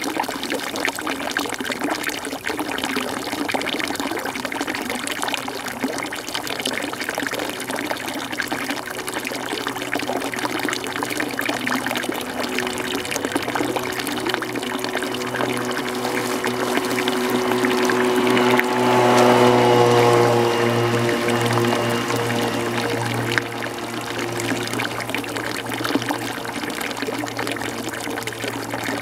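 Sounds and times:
water splashing: 0.0 - 29.0.

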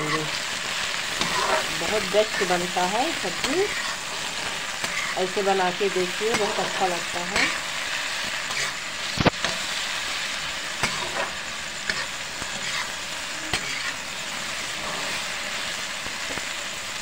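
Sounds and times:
vegetables sizzling in oil: 0.0 - 17.0
spoon scraping and knocking pan: 1.2 - 2.6, 10.8 - 12.9.

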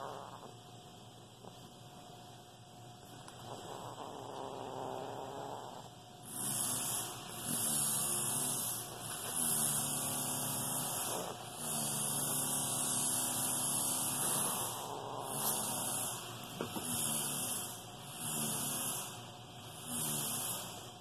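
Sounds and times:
parrot making buzzing rolled sound: 3.4 - 8.3, 14.0 - 16.0.

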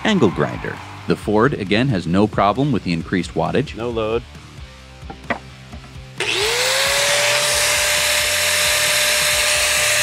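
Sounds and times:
angle grinder whine: 6.2 - 10.0.

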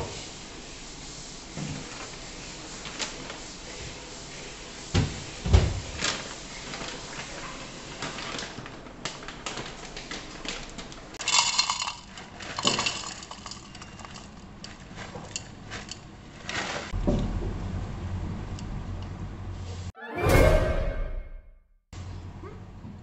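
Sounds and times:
packet rustling: 8.0 - 14.6.

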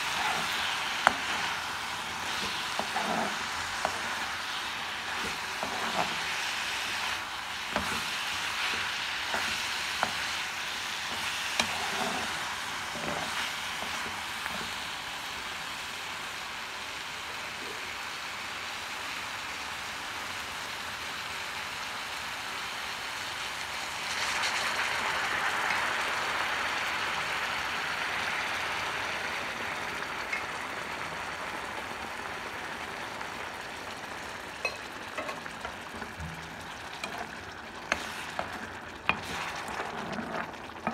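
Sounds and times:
steel spoon scraping pan: 0.0 - 4.3, 5.1 - 10.4, 11.1 - 14.8, 34.6 - 40.9
liquid hissing in hot pan: 0.0 - 19.4, 22.8 - 40.9
chicken sizzling in a wok: 0.0 - 40.9.

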